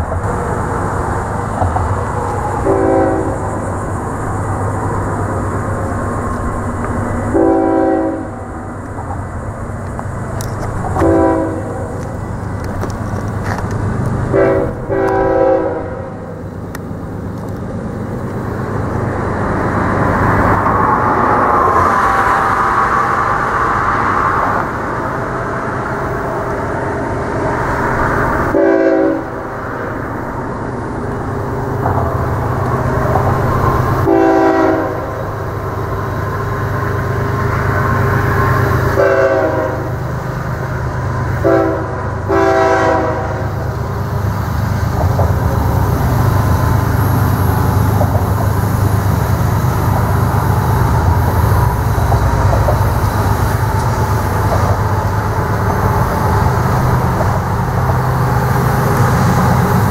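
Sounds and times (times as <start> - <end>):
low train rumble: 0.0 - 59.9
train horn blasts: 2.6 - 3.5, 7.3 - 8.5, 10.9 - 12.0, 14.3 - 16.2, 28.5 - 29.4, 34.0 - 35.2, 38.9 - 40.0, 41.4 - 43.6.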